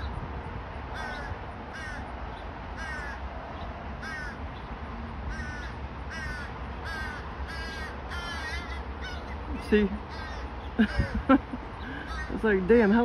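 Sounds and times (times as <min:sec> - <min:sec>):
crows cawing: 0:00.9 - 0:02.1, 0:02.8 - 0:03.3, 0:04.0 - 0:04.4, 0:05.3 - 0:12.4.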